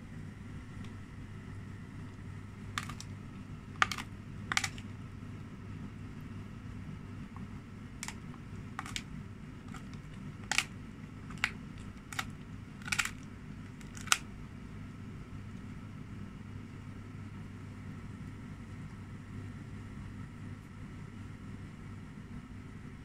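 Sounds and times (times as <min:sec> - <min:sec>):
steady low hum: 0:00.0 - 0:23.0
dog crunching a chew: 0:02.7 - 0:03.1, 0:03.7 - 0:04.9, 0:08.0 - 0:09.1, 0:09.7 - 0:14.2.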